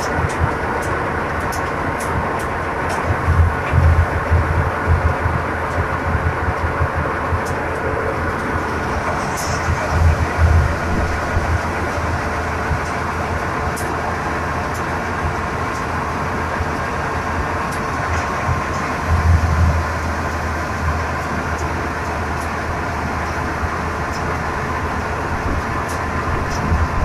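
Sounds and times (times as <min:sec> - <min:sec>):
threshing machine running: 0:00.0 - 0:27.0.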